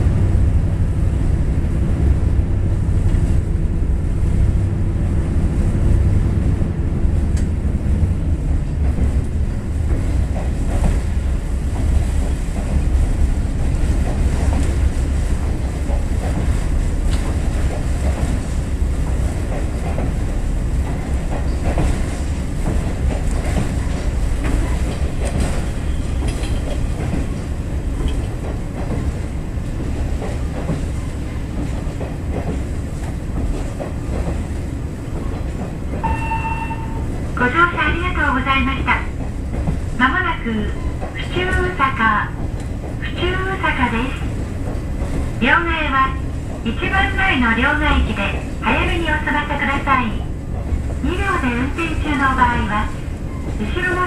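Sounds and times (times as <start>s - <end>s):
train wheels clicking over rail joints: 8.7s - 36.0s.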